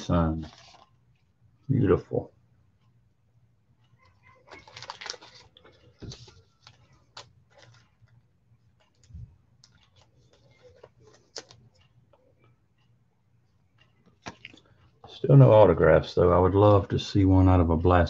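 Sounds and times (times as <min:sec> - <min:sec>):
plastic rustling: 0:00.2 - 0:01.3, 0:04.0 - 0:11.9.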